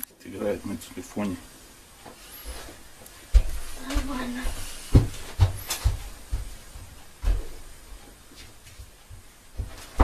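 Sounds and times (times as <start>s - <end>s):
faint hiss: 0.0s - 10.0s.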